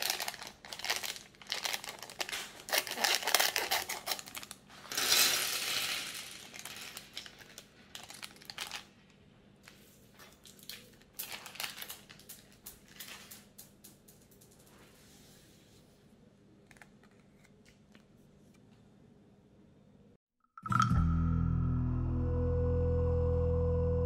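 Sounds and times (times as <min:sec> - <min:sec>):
plastic pieces clicking and rattling: 0:00.0 - 0:08.9, 0:10.4 - 0:14.7
plastic pieces spilling onto table: 0:00.0 - 0:08.9, 0:10.4 - 0:13.6
plastic bag crinkling: 0:00.0 - 0:09.0, 0:10.1 - 0:13.8.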